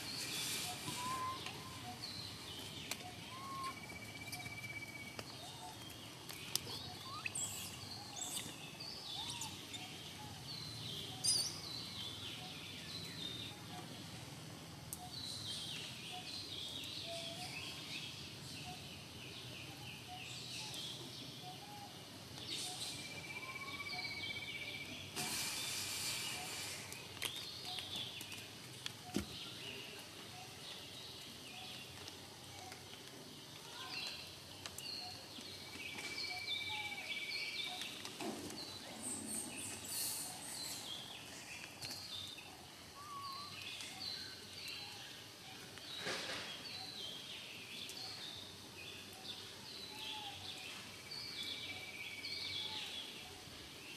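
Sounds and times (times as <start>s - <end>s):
birds chirping and trilling: 0.0s - 14.2s, 14.9s - 53.9s
brief rushing hiss: 0.1s - 1.4s, 25.2s - 26.9s.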